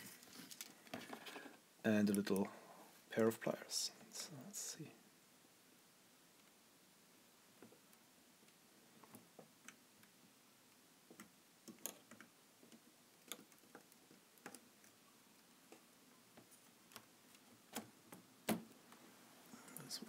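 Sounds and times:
small clicks and taps of tools: 11.1 - 15.0.

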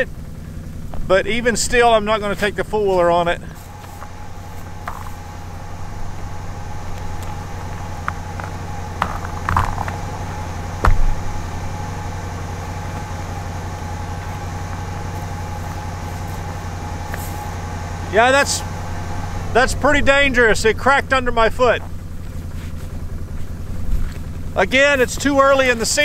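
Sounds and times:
four-wheeler engine idling: 0.0 - 26.0
boot stamps on ice: 3.5 - 5.4, 6.9 - 11.3
ice cracking: 6.9 - 10.3.

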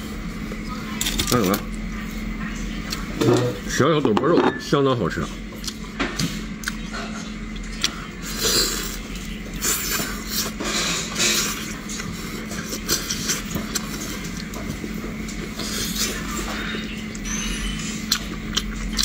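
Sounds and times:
steady low hum: 0.0 - 19.0
man chewing with wet mouth sounds: 5.5 - 19.0.

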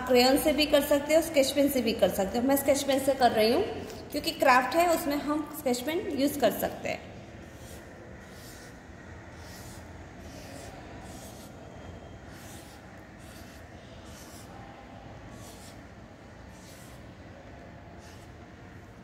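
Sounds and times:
pen scratching on paper: 7.4 - 14.6, 15.2 - 19.0.

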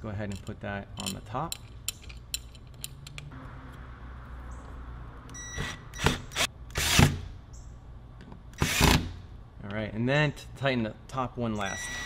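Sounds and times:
cordless drill driving screw: 8.6 - 9.0.

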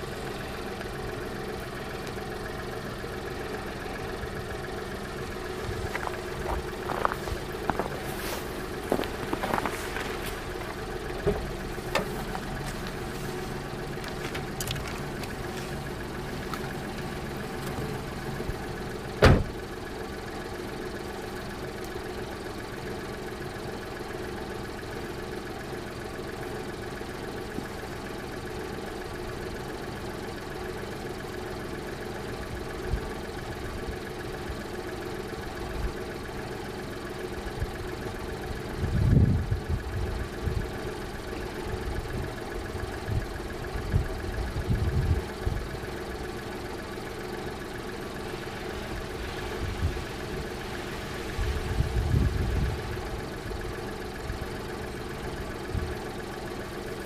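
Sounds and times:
car engine idling: 0.0 - 57.0
low thumps: 5.7 - 13.0
car door shutting: 6.0 - 15.8, 19.1 - 19.6.

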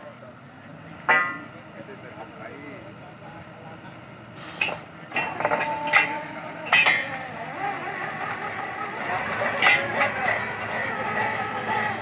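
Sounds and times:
metal clanks with ringing: 1.0 - 1.6, 4.6 - 7.2, 9.5 - 10.1.

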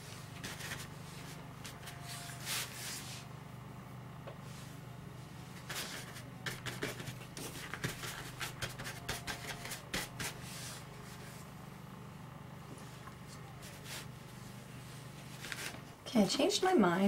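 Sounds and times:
paintbrush scrubbing: 0.4 - 3.2, 5.6 - 11.4, 13.6 - 14.2.

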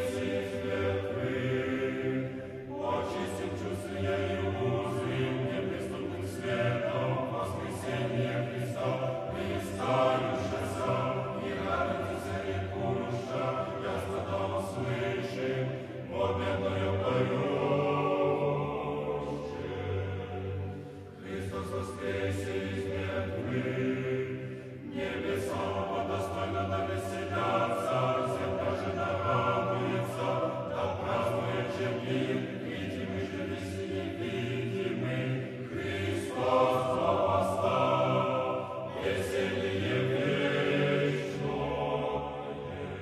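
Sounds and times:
choir singing slow chant: 0.0 - 43.0.

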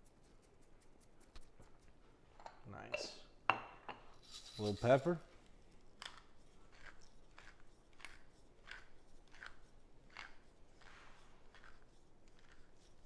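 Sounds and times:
pepper mill grinding: 4.2 - 5.2, 5.8 - 13.0.

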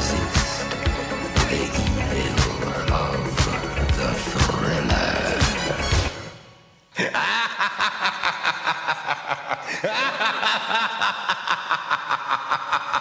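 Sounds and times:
evil laughter: 6.9 - 13.0.

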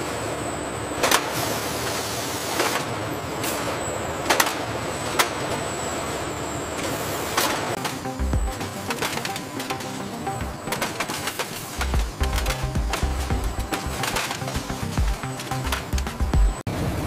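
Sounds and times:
high steady whine: 0.0 - 17.0
machinery hiss: 1.3 - 2.8.

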